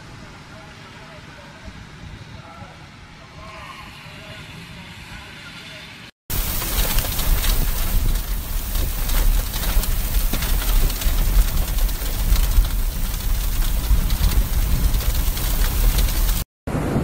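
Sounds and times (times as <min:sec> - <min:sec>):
heavy rain pelting a car: 0:06.3 - 0:17.0
low rumble: 0:06.3 - 0:17.0.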